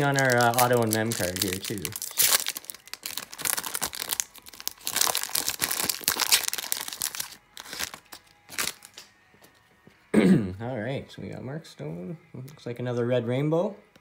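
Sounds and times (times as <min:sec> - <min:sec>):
foil wrapper tearing and crinkling: 0:00.0 - 0:09.1.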